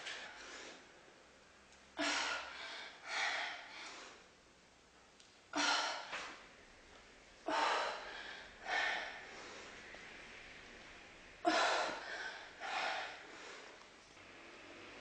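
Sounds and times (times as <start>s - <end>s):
woman breathing hard: 2.0s - 4.3s, 5.5s - 6.4s, 7.4s - 10.1s, 11.4s - 14.1s.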